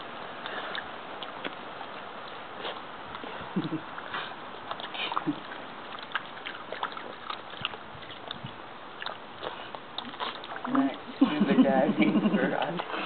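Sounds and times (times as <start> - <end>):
dogs lapping water: 0.0 - 13.0.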